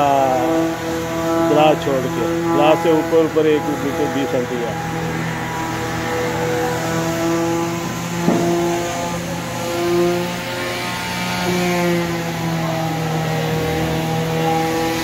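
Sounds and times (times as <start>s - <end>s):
electric sanders on wood: 0.0s - 15.0s
sharp knock: 7.8s - 8.6s.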